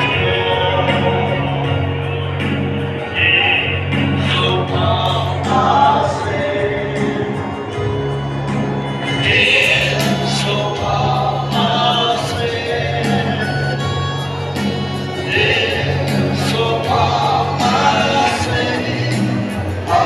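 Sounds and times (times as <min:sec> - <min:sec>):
group singing a hymn: 0:04.2 - 0:08.0, 0:09.2 - 0:14.0, 0:15.2 - 0:20.0.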